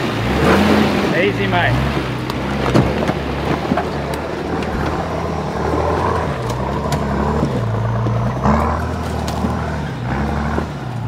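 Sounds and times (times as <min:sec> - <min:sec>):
truck engine running at low revs: 0:00.0 - 0:11.0
rocks clicking under tyres: 0:01.9 - 0:11.0.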